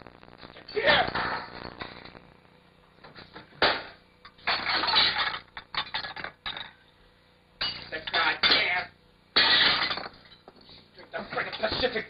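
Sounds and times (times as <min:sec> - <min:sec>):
dishes clattering: 0:03.6 - 0:06.8, 0:07.6 - 0:08.8, 0:09.4 - 0:10.6.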